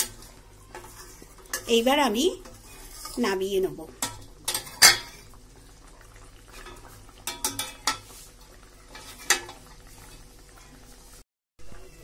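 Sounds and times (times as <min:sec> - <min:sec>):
metal spatula clinking in pot: 0:00.0 - 0:01.8, 0:04.0 - 0:05.1, 0:06.6 - 0:08.0, 0:08.9 - 0:09.6
curry bubbling: 0:00.0 - 0:12.0.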